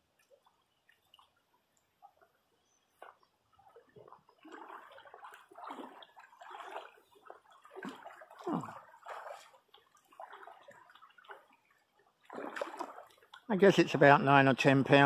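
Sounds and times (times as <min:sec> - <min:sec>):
water splashing and sloshing: 0:00.0 - 0:15.0
fish thrashing at water surface: 0:03.8 - 0:11.6, 0:12.2 - 0:13.5.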